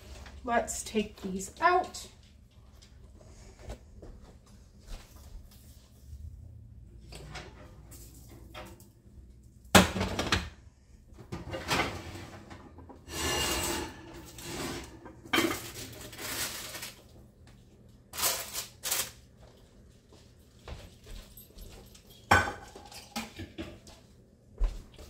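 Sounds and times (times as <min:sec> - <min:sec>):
dishes scraping and knocking: 0:11.2 - 0:15.9, 0:22.3 - 0:23.9.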